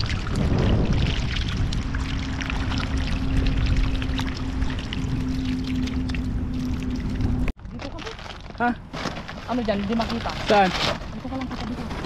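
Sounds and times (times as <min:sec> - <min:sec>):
steady low hum: 0:00.0 - 0:07.6
shallow water splashing: 0:00.0 - 0:08.6.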